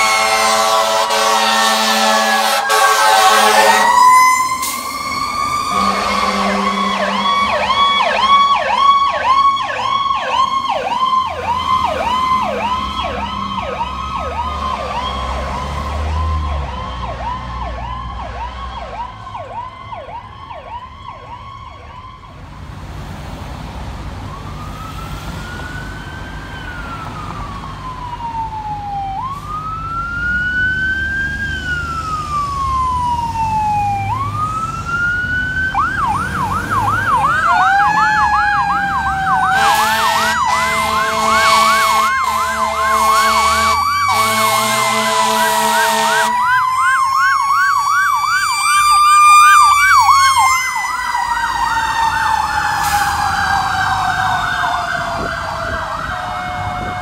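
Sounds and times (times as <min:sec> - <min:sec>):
air horn blasts: 0:00.0 - 0:04.9, 0:05.7 - 0:08.7, 0:39.5 - 0:46.5
siren wailing: 0:00.0 - 0:22.4, 0:24.2 - 0:57.0
siren yelping: 0:00.0 - 0:22.4, 0:24.3 - 0:57.0.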